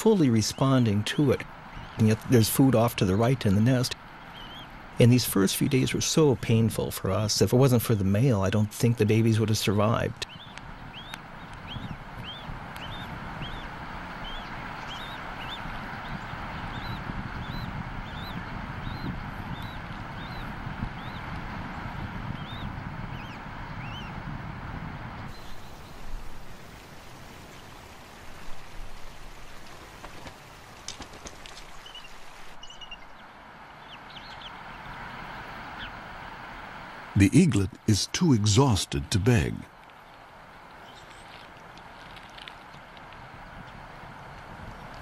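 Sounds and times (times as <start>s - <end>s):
steady outdoor hiss: 0.0s - 45.0s
eagle chick peeping: 4.2s - 5.9s, 10.0s - 24.2s.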